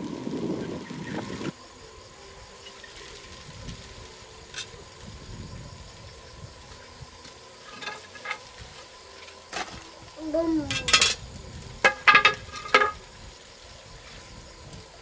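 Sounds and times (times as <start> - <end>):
wire being handled: 6.6 - 13.1
blade scraping wire insulation: 6.7 - 10.0.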